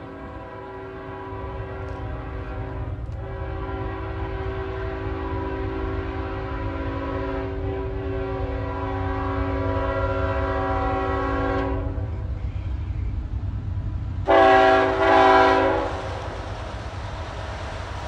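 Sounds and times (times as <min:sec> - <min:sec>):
train horn blasts: 0:00.0 - 0:12.3, 0:14.2 - 0:16.4
low rumble of train: 0:00.0 - 0:18.0.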